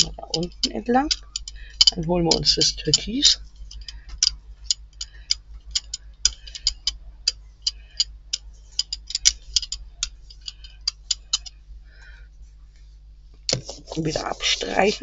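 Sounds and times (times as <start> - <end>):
roller on tacky paint crackling: 13.5 - 15.0.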